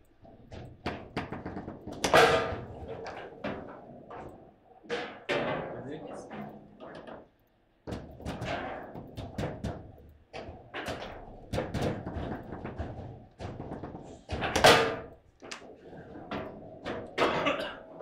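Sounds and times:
table football ball clacking: 7.9s - 15.6s.

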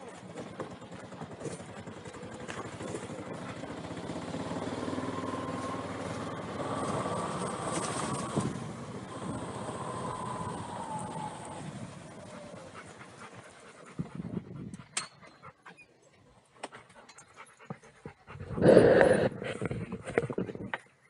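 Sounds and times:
vehicle engine driving past: 1.4s - 13.8s.

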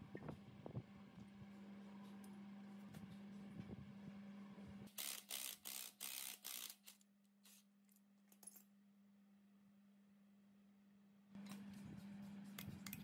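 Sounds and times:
impact wrench bursts: 4.9s - 6.9s.

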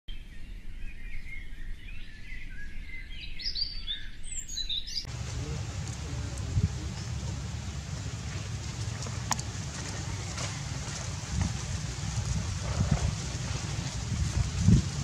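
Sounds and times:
birds chirping: 1.0s - 15.0s
low outdoor rumble: 5.1s - 15.0s.

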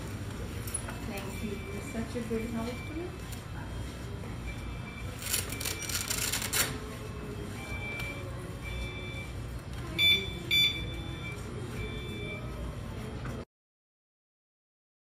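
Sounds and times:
loud short electronic beeps: 10.0s - 12.5s.

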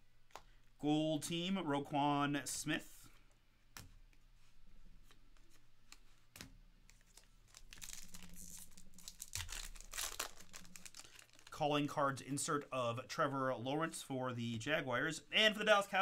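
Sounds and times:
foil wrapper tearing and crinkling: 7.1s - 11.6s.

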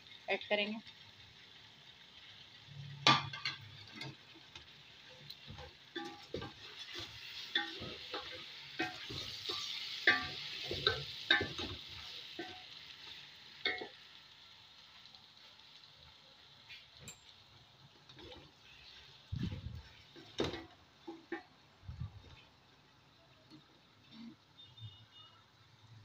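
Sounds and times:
food sizzling in oil: 0.0s - 26.0s
spatula scraping and tapping pot: 5.3s - 11.8s.

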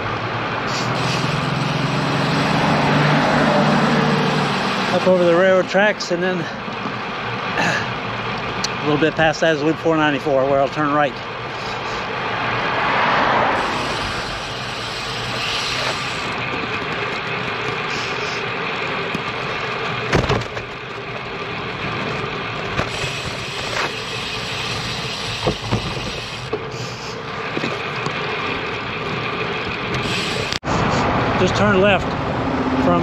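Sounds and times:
bicycle tyre and wind noise: 12.2s - 31.0s.

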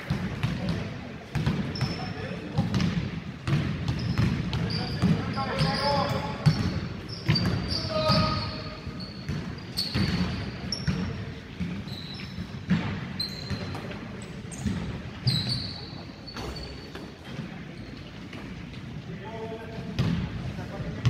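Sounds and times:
sneakers squeaking: 0.0s - 19.0s, 19.7s - 21.0s.

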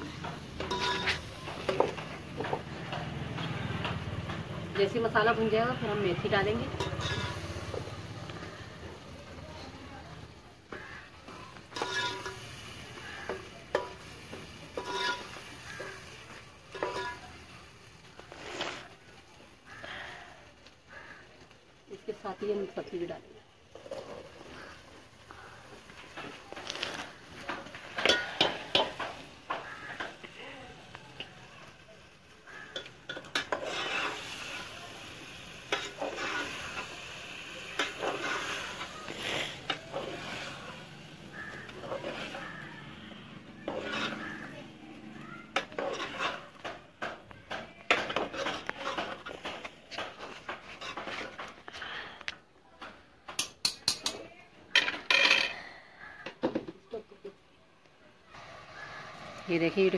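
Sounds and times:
vegetables sizzling: 0.0s - 52.1s, 58.2s - 59.9s
metal spoon scraping a pot: 0.1s - 4.0s, 6.2s - 7.9s, 10.7s - 19.0s, 23.0s - 30.2s, 32.5s - 51.7s
metal spoon knocking pot: 53.4s - 54.2s.

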